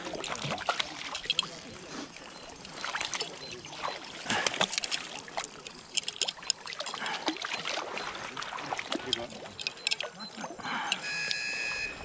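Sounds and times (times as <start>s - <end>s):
water splashing and trickling: 0.0s - 12.0s
small clicks and knocks: 4.4s - 7.0s, 9.1s - 10.1s.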